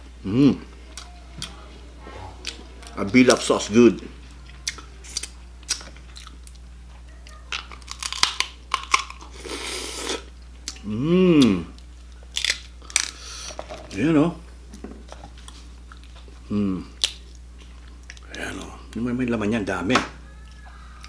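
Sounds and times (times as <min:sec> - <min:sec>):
person humming mmm: 0:00.2 - 0:02.6, 0:09.4 - 0:11.8, 0:16.5 - 0:17.0
man chewing crab meat: 0:02.4 - 0:06.7, 0:07.8 - 0:13.6
crab shell clicks and crunches: 0:07.6 - 0:09.3, 0:12.3 - 0:13.2.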